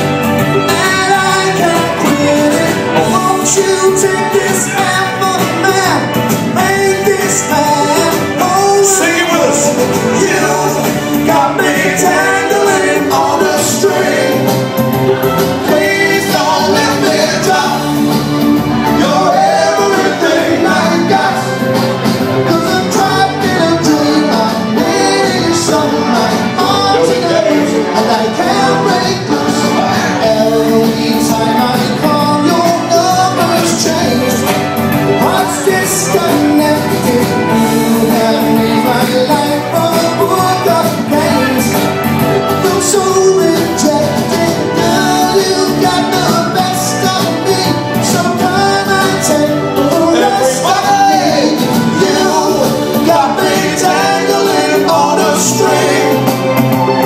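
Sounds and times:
soul music over a pa: 0:00.0 - 0:57.0
men singing into microphones: 0:00.5 - 0:57.0.

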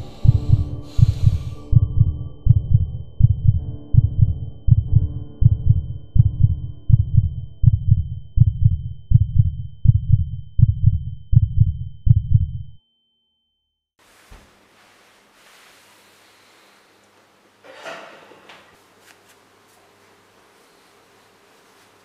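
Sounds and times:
drone: 0:00.0 - 0:05.2
heartbeat-like thumps: 0:00.0 - 0:12.8.

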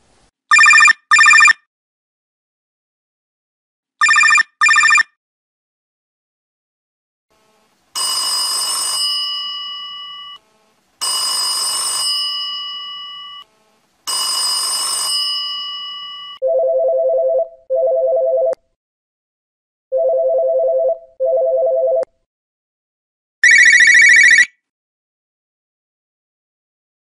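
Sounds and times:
electronic telephone ringer warbling: 0:00.5 - 0:01.6, 0:04.0 - 0:05.1, 0:08.0 - 0:10.4, 0:11.0 - 0:13.5, 0:14.1 - 0:18.6, 0:23.4 - 0:24.5
mechanical telephone bell ringing: 0:08.0 - 0:10.4, 0:11.0 - 0:13.5, 0:14.1 - 0:16.9.

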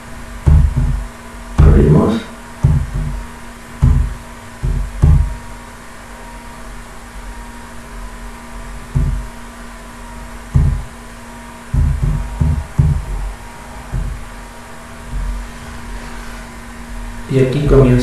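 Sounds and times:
dull low thumps: 0:00.0 - 0:05.7, 0:08.6 - 0:18.0
low electrical hum: 0:00.0 - 0:18.0.

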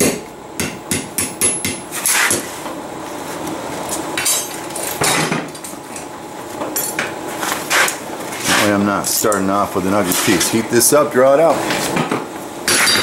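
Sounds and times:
hammer striking metal on anvil: 0:00.0 - 0:02.4, 0:12.7 - 0:13.0.

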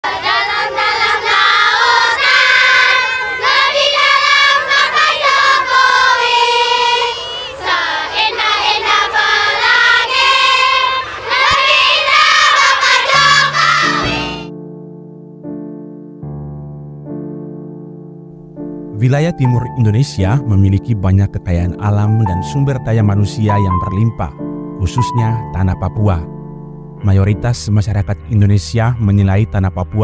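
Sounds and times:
children singing together: 0:00.0 - 0:14.5
piano: 0:11.9 - 0:30.0.

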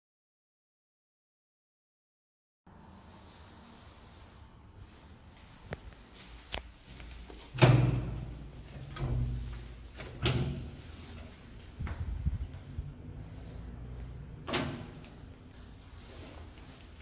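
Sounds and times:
lift door clicks and metal bangs: 0:07.5 - 0:10.9, 0:14.4 - 0:15.2
low rumble: 0:11.6 - 0:14.4.

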